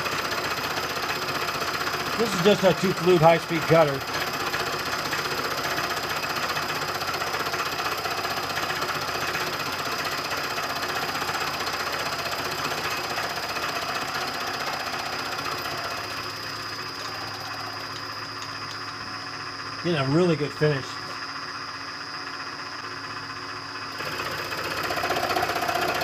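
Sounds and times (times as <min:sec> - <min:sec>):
milling machine cutting metal: 0:00.0 - 0:18.9
spindle running: 0:00.0 - 0:21.7, 0:22.3 - 0:26.0
thin high whine: 0:12.8 - 0:22.8.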